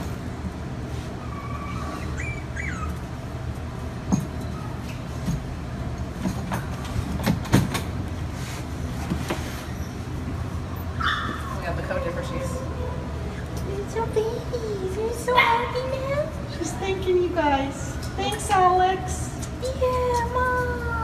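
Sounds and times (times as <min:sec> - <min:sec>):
steady low hum: 0:00.0 - 0:21.0
puppies squeaking and whimpering: 0:01.2 - 0:03.3.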